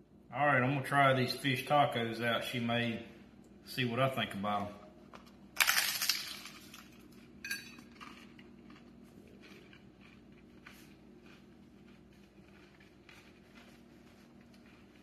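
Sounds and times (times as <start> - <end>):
hard taco shell crunch: 5.1 - 15.0
chewing crunching: 5.2 - 15.0.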